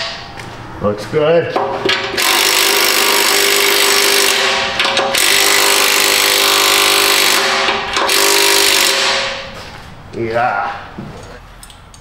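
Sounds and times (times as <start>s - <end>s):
impact wrench hammering: 0.0s - 0.3s, 1.6s - 9.7s.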